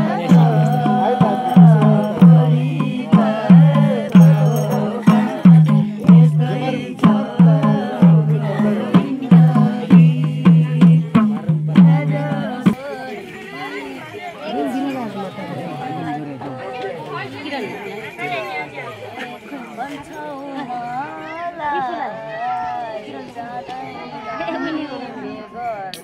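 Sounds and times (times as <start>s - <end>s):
low hand-drum strokes: 0.0s - 12.8s
folk singing: 0.0s - 26.0s.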